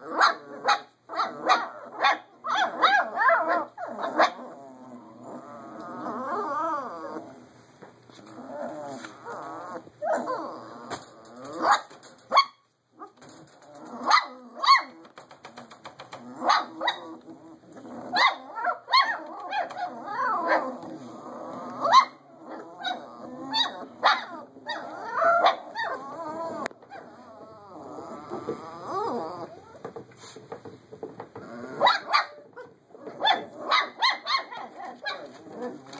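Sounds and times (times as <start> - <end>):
puppies yipping and barking: 16.0 - 27.2, 31.4 - 35.9.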